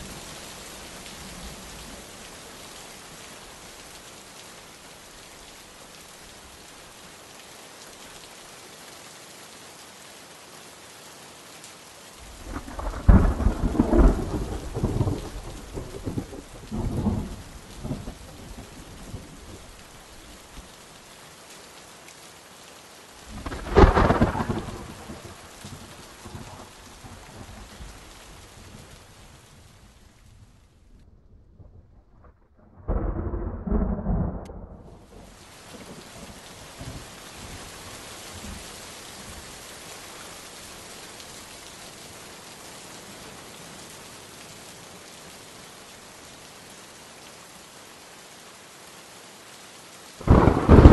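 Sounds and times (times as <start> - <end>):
steady rain: 0.0 - 50.9
thunder rumbling: 12.2 - 19.8, 23.3 - 28.0, 30.3 - 37.7, 50.2 - 50.9.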